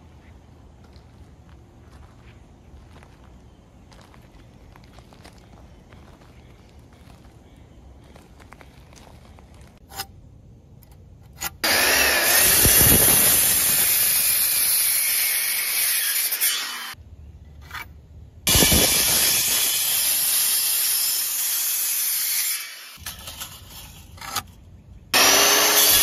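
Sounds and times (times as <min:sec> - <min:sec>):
circular saw cutting wood: 0:11.5 - 0:17.0, 0:18.5 - 0:23.0, 0:25.2 - 0:26.0.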